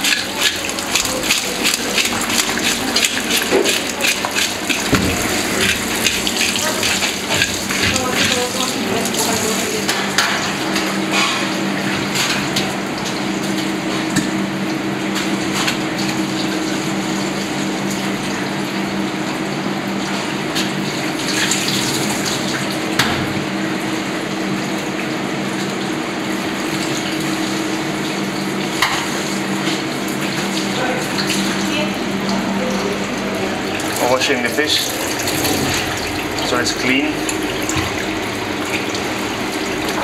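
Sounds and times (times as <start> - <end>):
tap water running into sink: 0.0 - 11.3, 26.6 - 40.0
knocks against sink: 4.8 - 5.8.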